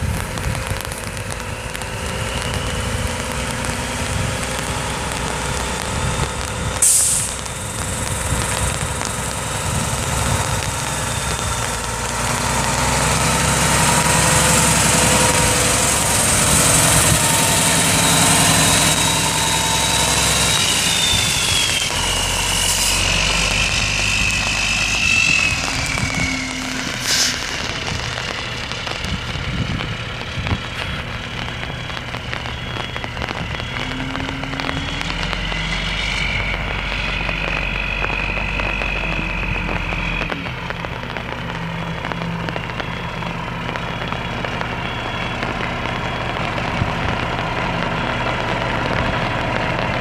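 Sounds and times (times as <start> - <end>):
thin high whine: 0.5 - 29.3, 30.7 - 40.5.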